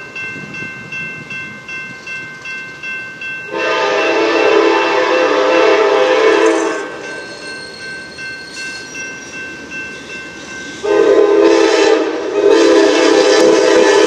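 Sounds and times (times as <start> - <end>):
locomotive air horn blasts: 3.5 - 7.0, 10.8 - 14.0.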